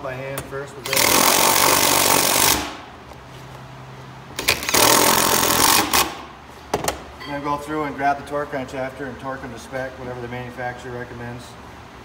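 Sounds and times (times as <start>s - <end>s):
cordless impact driver hammering: 0.8s - 2.8s, 4.4s - 6.2s.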